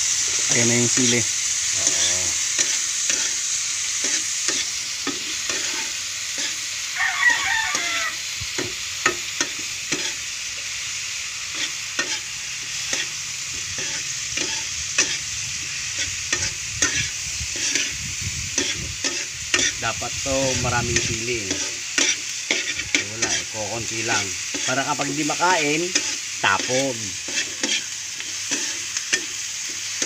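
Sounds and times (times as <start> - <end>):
crickets sizzling in metal pan: 0.0 - 30.0
metal spatula scraping pan: 4.0 - 6.6, 16.0 - 18.0, 20.5 - 23.5, 25.9 - 29.4
rooster crowing: 6.9 - 8.3.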